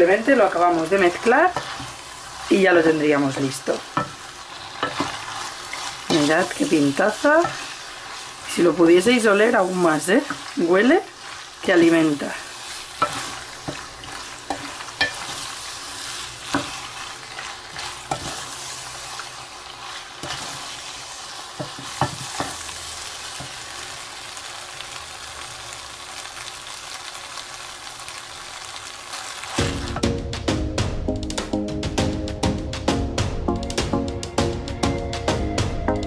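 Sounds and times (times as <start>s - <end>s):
faint sizzle: 0.0s - 30.1s
wooden spoon stirring pasta: 0.2s - 23.6s.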